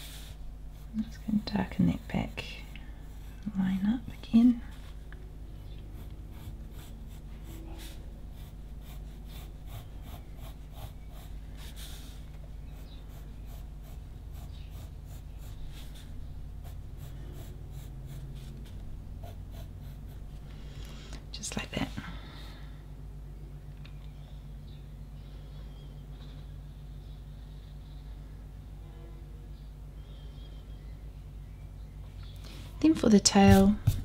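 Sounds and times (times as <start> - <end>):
pencil scratching on paper: 6.0 - 20.2.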